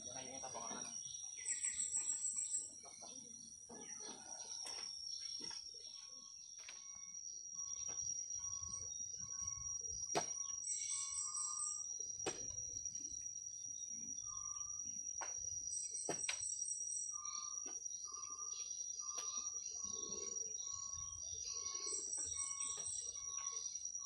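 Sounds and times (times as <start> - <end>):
birds calling: 0.0 - 6.6, 10.2 - 12.0, 15.7 - 24.0
high chirps: 10.3 - 13.0, 15.7 - 24.0.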